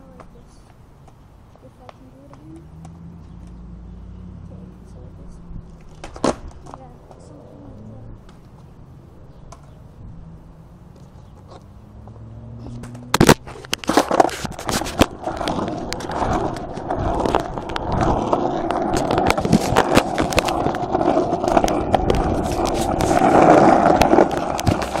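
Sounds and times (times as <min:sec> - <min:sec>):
fingers rubbing on microphone: 0:21.5 - 0:23.4.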